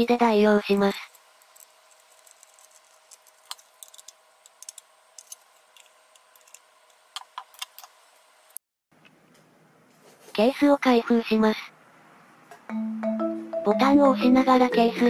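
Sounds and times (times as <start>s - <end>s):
small screw clicks and ticks: 0.7s - 7.9s.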